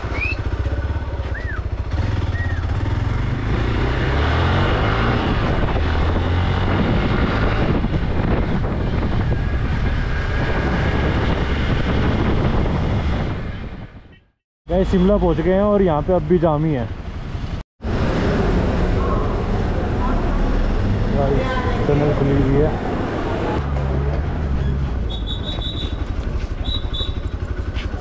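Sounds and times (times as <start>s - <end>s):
motorcycle engine running: 0.0s - 14.0s, 23.6s - 28.0s.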